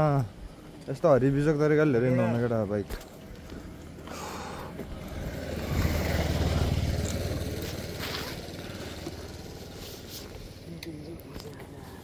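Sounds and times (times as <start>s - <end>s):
vehicle engine passing by: 4.1s - 10.8s.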